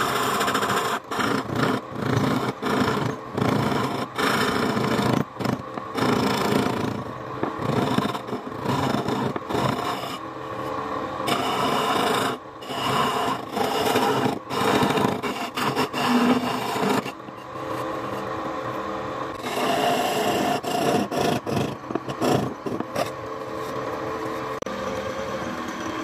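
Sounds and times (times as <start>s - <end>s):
turning tool scraping wood on lathe: 0.0s - 18.3s, 19.4s - 23.8s.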